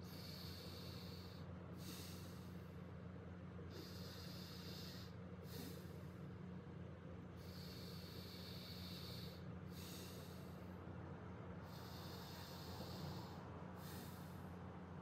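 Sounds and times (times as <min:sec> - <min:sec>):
slow breaths through nostril: 0:00.0 - 0:02.7, 0:07.4 - 0:10.8, 0:11.6 - 0:14.6
steady low hum: 0:00.0 - 0:15.0.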